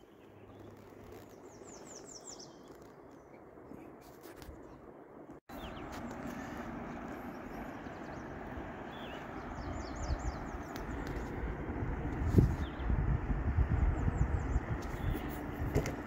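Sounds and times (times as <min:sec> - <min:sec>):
songbirds chirping: 0:00.0 - 0:16.0
wind: 0:00.0 - 0:16.0
wind thumps on microphone: 0:09.8 - 0:16.0.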